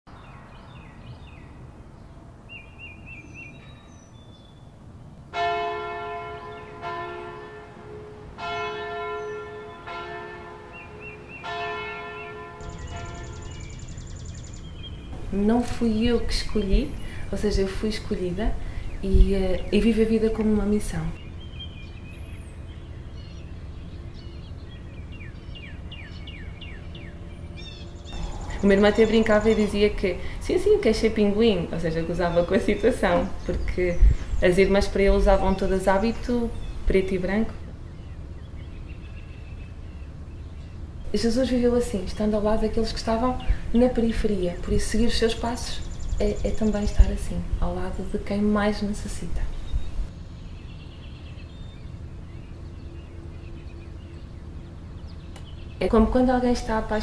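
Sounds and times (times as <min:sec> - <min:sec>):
birds chirping: 0:00.1 - 0:57.0
church bell tolling: 0:05.3 - 0:13.8, 0:28.1 - 0:31.8
steady low rumble: 0:12.6 - 0:57.0
short falling bird notes: 0:28.1 - 0:30.9.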